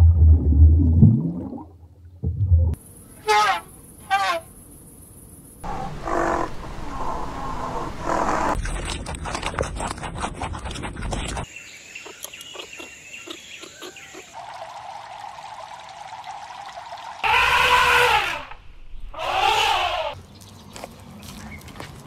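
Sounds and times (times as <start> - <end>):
elephant calling: 3.2 - 4.5, 17.2 - 20.2
rabbits crunching food pellets: 8.6 - 11.5
faint chirps and ticks: 12.0 - 14.4.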